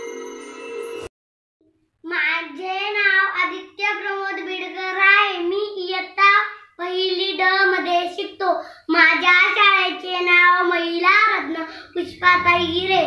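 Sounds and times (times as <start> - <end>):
chime-like intro music: 0.0 - 1.1
boy speaking: 2.0 - 13.0.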